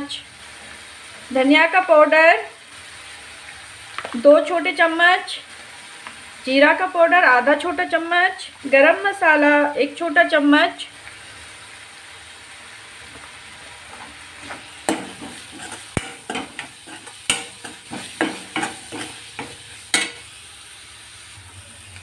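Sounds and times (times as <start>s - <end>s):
faint sizzle of frying: 0.0s - 22.0s
metal spatula scraping a pan: 13.9s - 20.3s.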